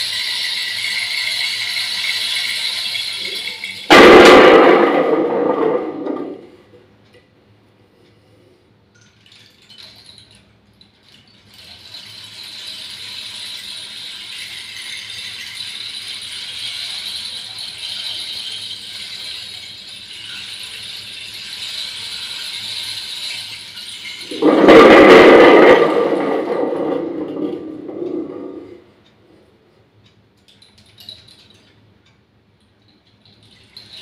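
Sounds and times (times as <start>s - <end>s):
rain stick trickling hiss: 0.0s - 3.9s, 10.9s - 24.3s.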